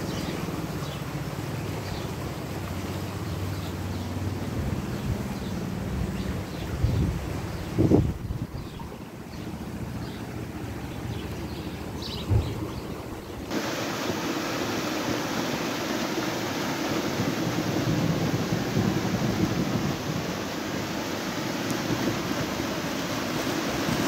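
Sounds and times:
light wind: 0:00.0 - 0:24.0
rushing flood water: 0:00.0 - 0:24.0
brief thump: 0:12.2 - 0:12.6.

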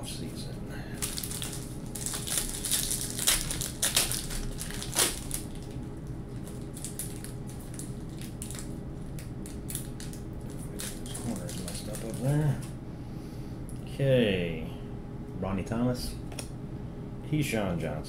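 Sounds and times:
card pack wrapper crinkling and tearing: 0:01.0 - 0:12.5
cards rustling and ticking: 0:01.0 - 0:12.7.

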